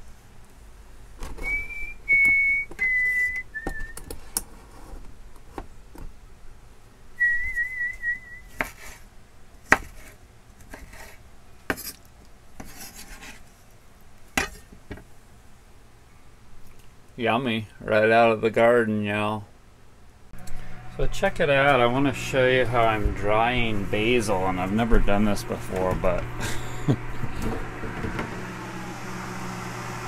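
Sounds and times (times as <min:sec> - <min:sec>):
person whistling a tune: 0:01.4 - 0:04.1, 0:07.2 - 0:08.5
knife scraping rasps: 0:08.5 - 0:09.0, 0:09.7 - 0:12.0.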